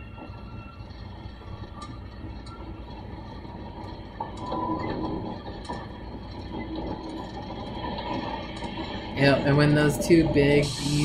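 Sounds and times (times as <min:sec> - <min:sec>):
faint steady tones: 0:00.0 - 0:11.0
train rumbling: 0:00.0 - 0:11.0.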